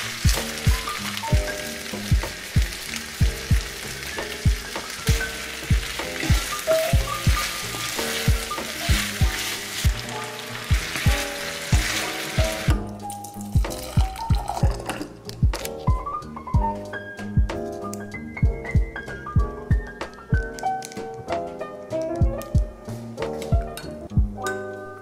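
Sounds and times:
vegetables sizzling in oil: 0:00.0 - 0:14.8
wooden spoon stirring pot: 0:00.0 - 0:15.3
background music with kick drum: 0:00.0 - 0:24.8.

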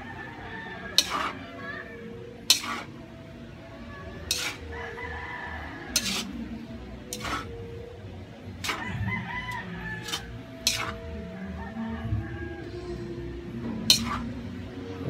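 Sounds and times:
rooster crowing: 0:00.0 - 0:02.8, 0:04.4 - 0:06.6, 0:08.7 - 0:13.4
metal utensil clanking in wok: 0:00.9 - 0:01.4, 0:02.4 - 0:03.0, 0:04.2 - 0:04.9, 0:05.9 - 0:06.4, 0:07.0 - 0:07.8, 0:08.5 - 0:08.9, 0:10.0 - 0:11.2, 0:13.7 - 0:14.6.

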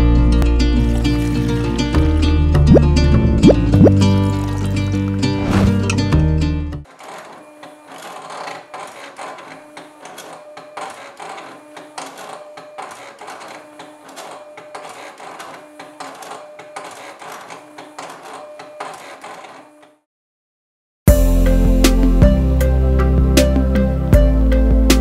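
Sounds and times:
cutting machine motors whirring: 0:06.9 - 0:20.0.

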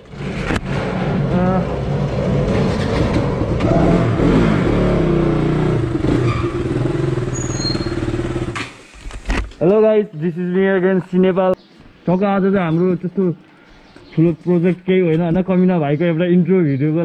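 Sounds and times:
motorcycle engines running: 0:00.0 - 0:08.7.

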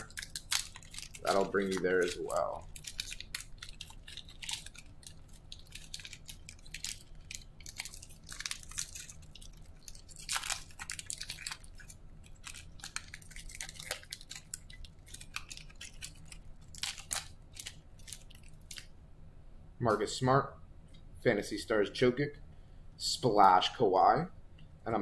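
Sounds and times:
foil wrapper crinkling: 0:00.0 - 0:18.9.

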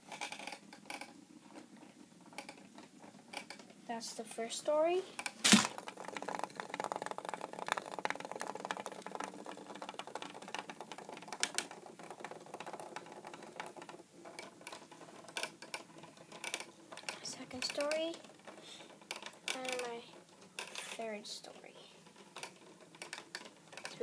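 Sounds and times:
sharp knock: 0:05.4 - 0:05.7
robot bugs skittering in tubes: 0:05.4 - 0:24.0.

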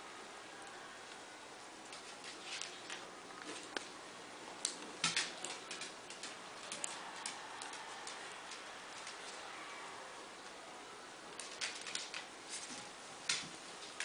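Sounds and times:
puppies clicking and rustling: 0:04.6 - 0:09.4, 0:11.4 - 0:14.0.

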